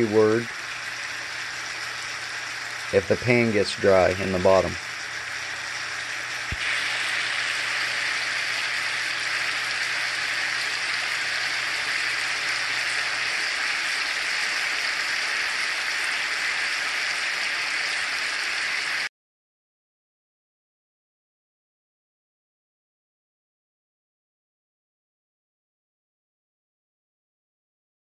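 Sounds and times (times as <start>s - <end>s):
steaks sizzling in skillet: 0.0s - 19.1s.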